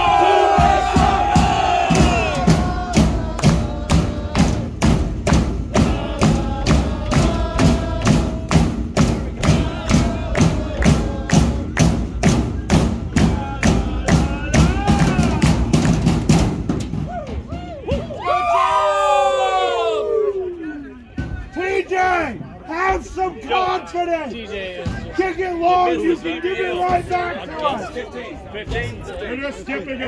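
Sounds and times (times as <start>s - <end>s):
fans chanting: 0.0s - 15.8s
drum beating quick rhythm: 0.0s - 17.3s.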